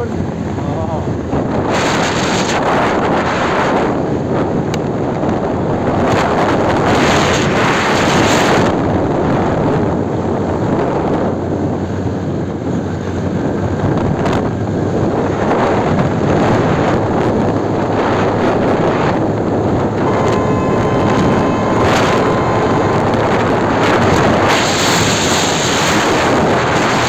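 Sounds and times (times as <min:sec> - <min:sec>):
motorbike engine and road hum: 0:00.0 - 0:27.0
wind buffeting microphone: 0:00.0 - 0:27.0.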